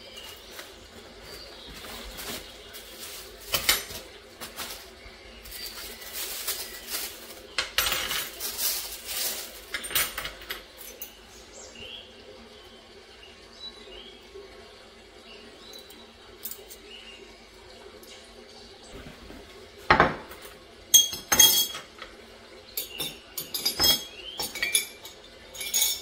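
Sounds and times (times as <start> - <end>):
dishes and cutlery clinking: 1.3 - 11.2, 19.9 - 22.2, 22.8 - 26.0.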